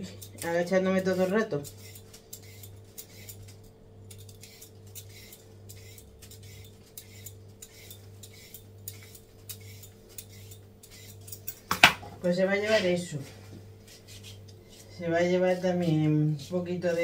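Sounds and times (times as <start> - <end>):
steady low hum: 0.0 - 17.0
blade scraping cucumber skin: 1.6 - 11.4.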